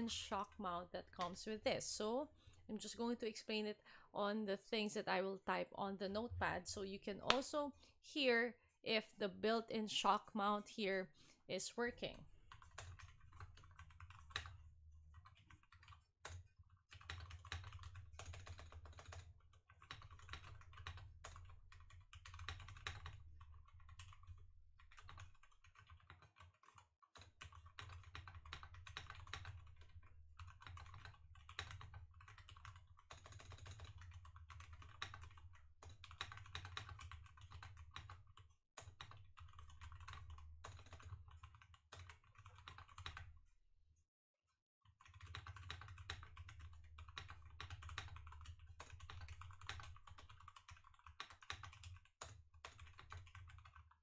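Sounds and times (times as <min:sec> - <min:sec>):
keyboard typing: 0:12.4 - 0:43.3, 0:44.8 - 0:54.0.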